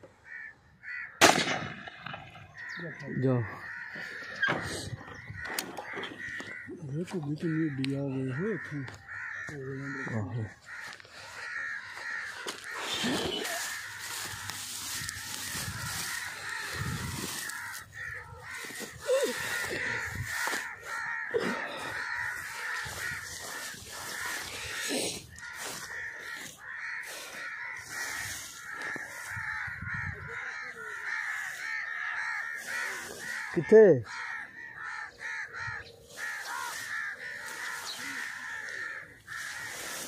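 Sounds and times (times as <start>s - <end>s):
bird calls: 0.0s - 40.0s
crows cawing: 0.0s - 40.0s
footsteps through wheat: 8.8s - 33.6s, 34.2s - 40.0s.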